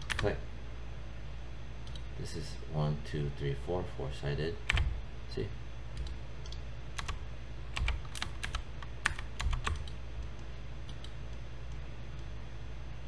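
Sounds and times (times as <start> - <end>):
steady low hum: 0.0 - 13.0
keyboard and mouse clicking: 6.0 - 7.2, 7.8 - 12.3.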